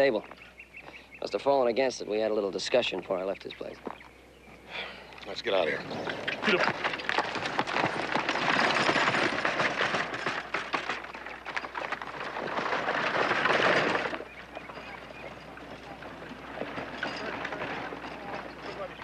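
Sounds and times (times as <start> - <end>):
hooves clattering: 0.0 - 19.0
wagon wheels rattling: 5.3 - 19.0.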